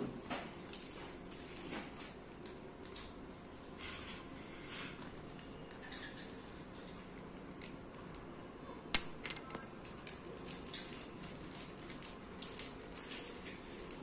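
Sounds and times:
plastic packaging crinkling: 9.5 - 14.0.

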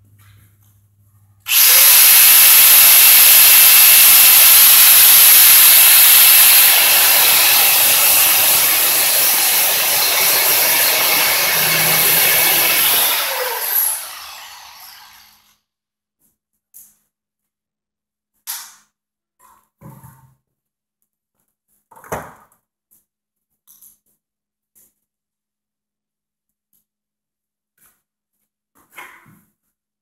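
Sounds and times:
grinder grinding steel: 1.5 - 15.5.

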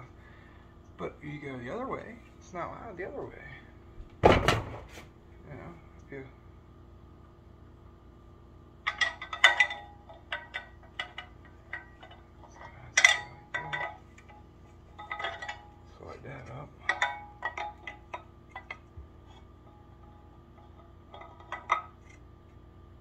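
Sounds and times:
metal climbing sticks clanking: 8.8 - 22.2.

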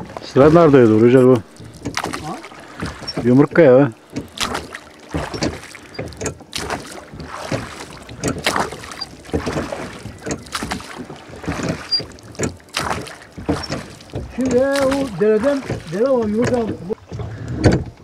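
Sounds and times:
water slapping against boat: 0.0 - 18.0.

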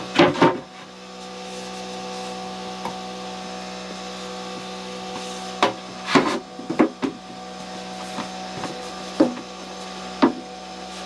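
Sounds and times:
wooden knocks and clunks: 8.2 - 9.5, 10.2 - 10.4.

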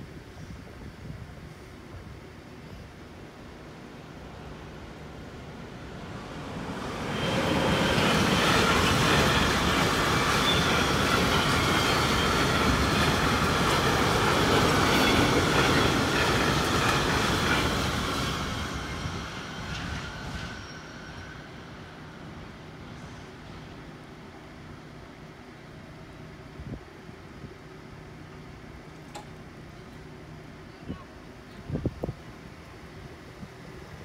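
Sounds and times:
freight train wheels clattering: 7.2 - 20.7.

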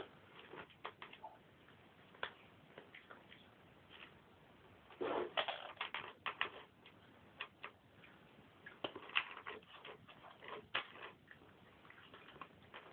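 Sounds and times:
cats chewing from a bowl: 5.6 - 12.9.

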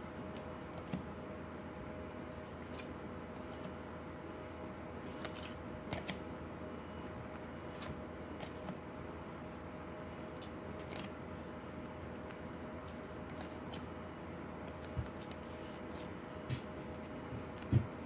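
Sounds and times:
low background hum: 0.0 - 18.0
cards clicking and snapping: 5.1 - 6.2, 10.4 - 11.2, 13.3 - 13.9.

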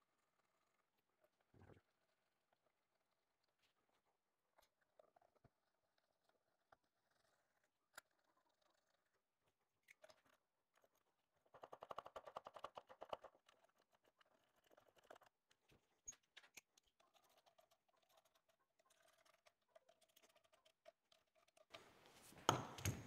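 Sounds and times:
clicks of small bolts handled: 22.4 - 23.0.

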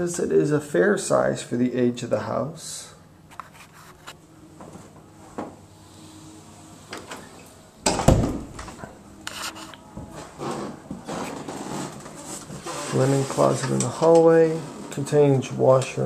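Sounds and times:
closet door clicks and rubbing: 7.8 - 8.9.

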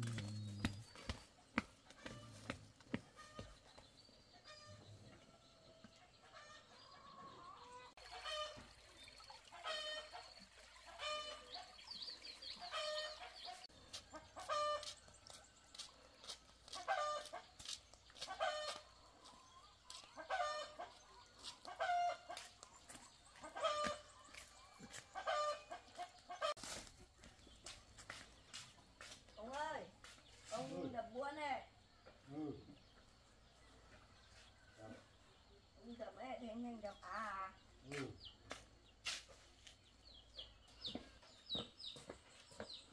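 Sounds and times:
chickens clucking: 0.0 - 8.7, 9.5 - 29.2.

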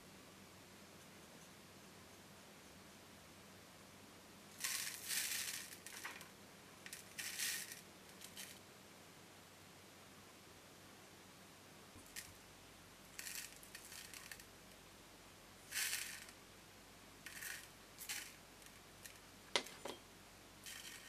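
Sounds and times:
clay grains rattling into a wok: 4.6 - 8.6, 13.1 - 14.5, 15.7 - 16.4, 17.2 - 20.0, 20.6 - 21.0.

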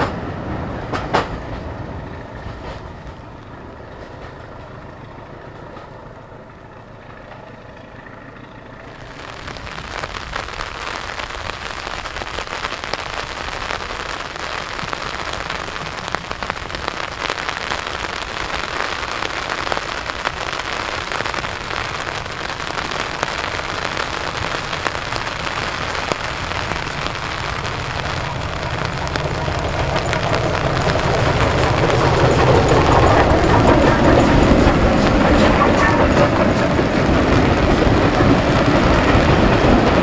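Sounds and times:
low rumble: 0.0 - 40.0
steady rain: 8.9 - 40.0
raindrops ticking: 9.0 - 40.0.

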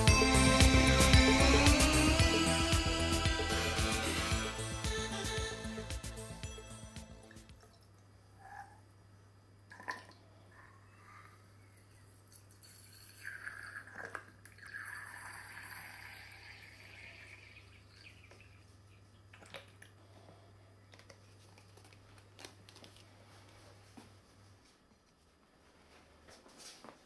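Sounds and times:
water trickling: 12.6 - 19.8.

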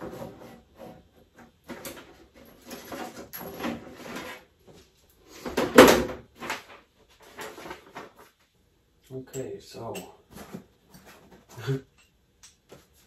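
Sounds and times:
metal hoses rustling and clinking: 0.0 - 4.5.

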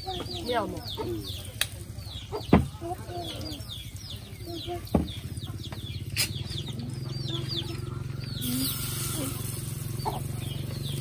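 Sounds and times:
chicks peeping: 0.0 - 11.0
low motor hum: 2.6 - 11.0
batter frying in hot oil: 8.4 - 11.0.

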